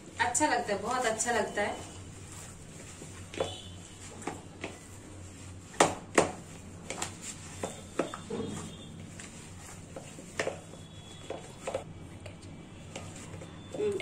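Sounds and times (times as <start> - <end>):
dough knocking and slapping in bowl: 3.3 - 5.0, 5.7 - 11.9.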